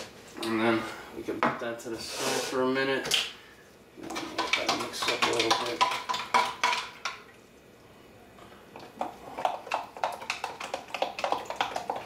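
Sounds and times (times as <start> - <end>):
spoon stirring water in plastic cup: 4.0 - 7.2, 8.9 - 12.0.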